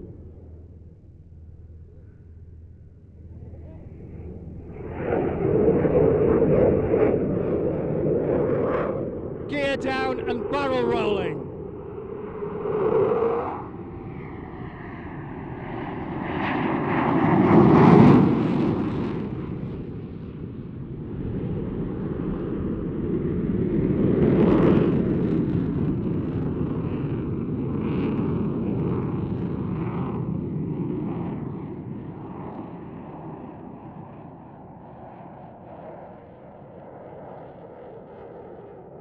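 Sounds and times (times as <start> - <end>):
jet roar: 3.2 - 27.2.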